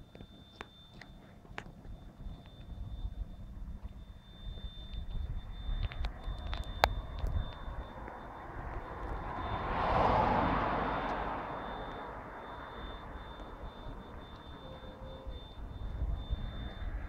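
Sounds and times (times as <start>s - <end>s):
vehicle passing on road: 5.4s - 17.0s.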